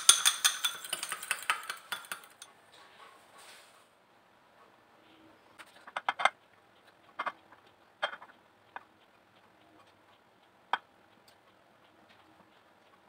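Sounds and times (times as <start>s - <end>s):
taps on glass baking dish: 0.0s - 2.5s.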